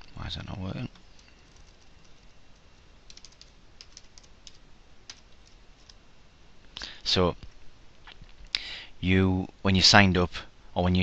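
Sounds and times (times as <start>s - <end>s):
computer keyboard typing: 0.9s - 2.3s, 3.1s - 6.0s.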